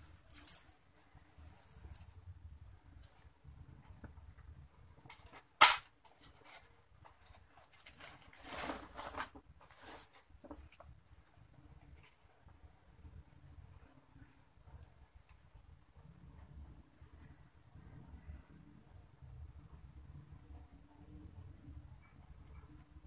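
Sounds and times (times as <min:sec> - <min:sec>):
sharp loud click: 0:05.6 - 0:05.9.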